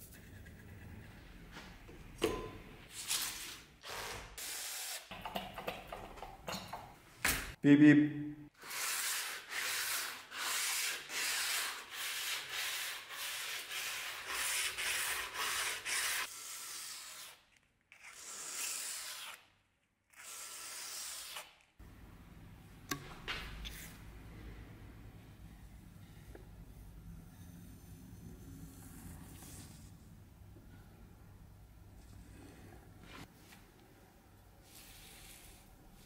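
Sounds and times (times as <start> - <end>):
sandpaper rubbing on metal blade: 8.6 - 17.4.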